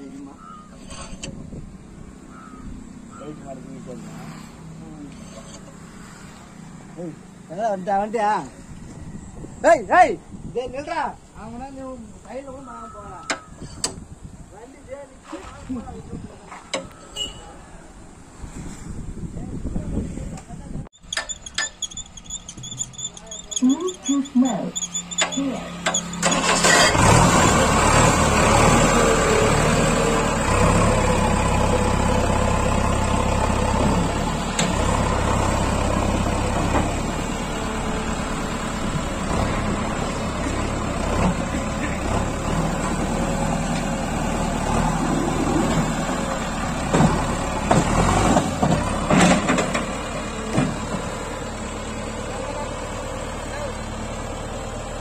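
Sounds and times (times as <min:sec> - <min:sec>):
diesel engine running: 0:21.0 - 0:55.0.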